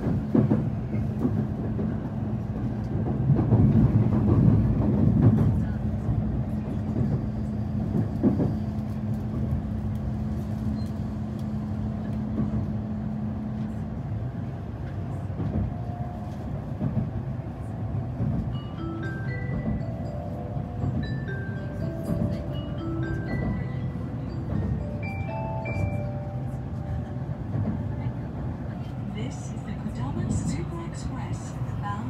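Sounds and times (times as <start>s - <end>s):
train low rumble: 0.0s - 32.0s
chime-like melody: 18.6s - 26.7s.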